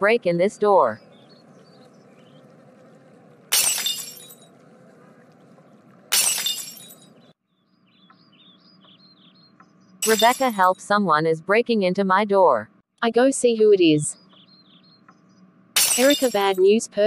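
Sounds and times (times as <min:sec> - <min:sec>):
glass smashing: 0:03.5 - 0:04.4, 0:06.1 - 0:07.1, 0:10.0 - 0:10.7, 0:15.8 - 0:16.6.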